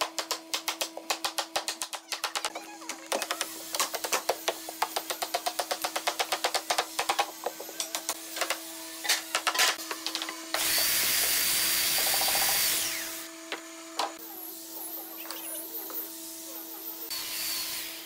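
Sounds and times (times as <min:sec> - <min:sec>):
hammer tapping wooden frame: 0:03.1 - 0:08.1
power tool whining: 0:07.0 - 0:18.0.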